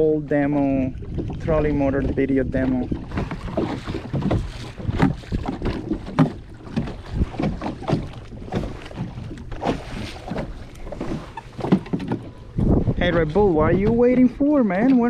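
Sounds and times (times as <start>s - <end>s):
water splashing against kayak hull: 0.0s - 15.0s
wind buffeting microphone: 0.0s - 15.0s.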